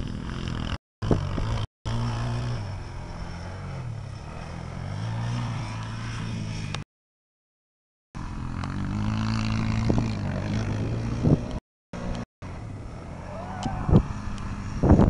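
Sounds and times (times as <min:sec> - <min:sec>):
quad bike engine running: 0:00.0 - 0:06.8, 0:08.2 - 0:15.0
wind buffeting microphone: 0:09.6 - 0:11.6, 0:13.5 - 0:15.0.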